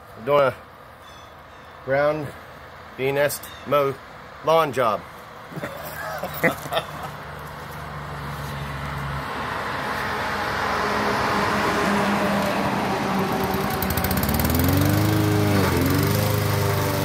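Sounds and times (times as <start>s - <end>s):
lawn mower engine running: 11.0s - 17.0s.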